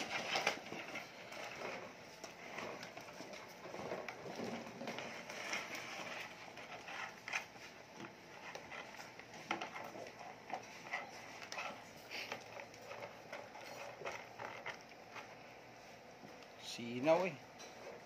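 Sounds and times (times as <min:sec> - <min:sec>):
puppies chewing and lapping: 0:00.0 - 0:16.6.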